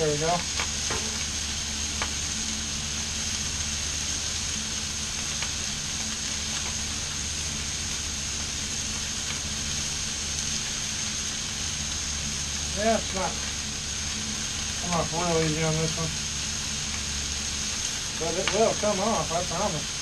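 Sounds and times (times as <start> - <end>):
food sizzling on a griddle: 0.0 - 20.0.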